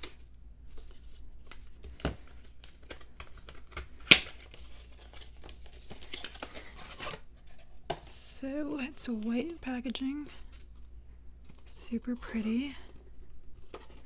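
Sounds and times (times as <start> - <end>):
cardboard packaging crinkling: 0.0 - 14.0.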